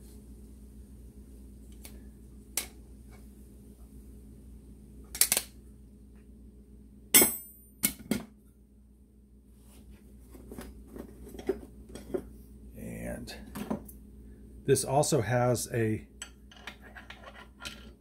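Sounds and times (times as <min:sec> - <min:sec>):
metal parts knocking and clinking: 0:16.5 - 0:18.0.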